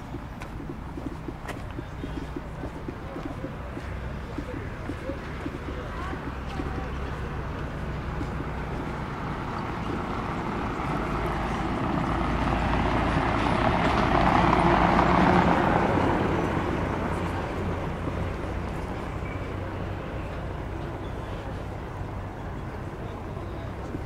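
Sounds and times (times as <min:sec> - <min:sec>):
vehicle passing by: 0:01.5 - 0:20.5.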